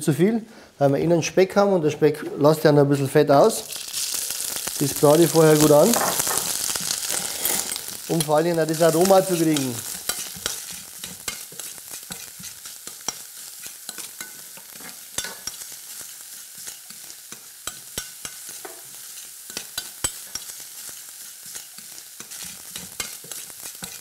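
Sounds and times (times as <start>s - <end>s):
bacon sizzling in a saucepan: 3.3s - 24.0s
spoon stirring: 3.6s - 13.3s.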